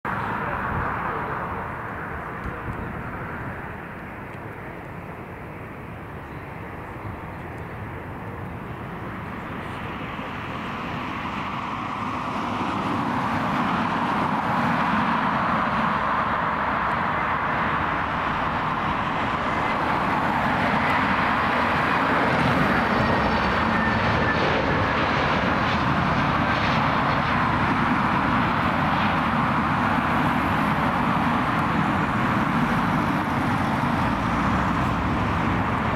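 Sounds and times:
airliner jet engines rushing: 0:00.1 - 0:35.9.

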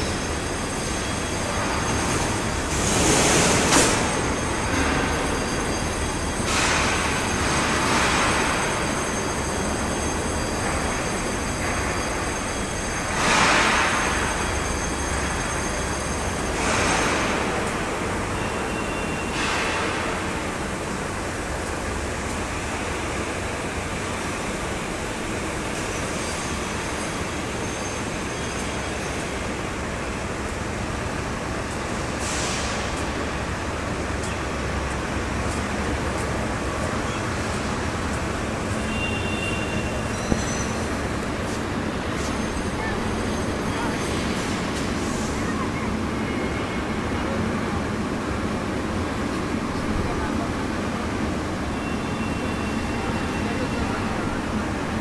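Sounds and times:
industrial machinery rumble: 0:00.0 - 0:55.0
faint high whining tones: 0:33.4 - 0:55.0.

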